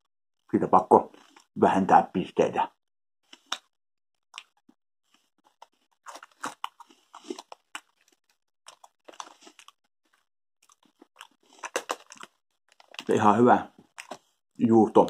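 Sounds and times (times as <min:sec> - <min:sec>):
crunchy chewing of cheese puffs: 0:01.1 - 0:01.5, 0:03.2 - 0:14.4.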